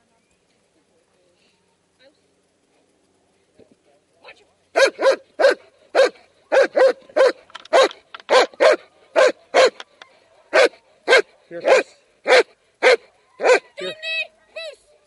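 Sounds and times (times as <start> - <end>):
dog barking: 4.8 - 9.8, 10.4 - 13.8.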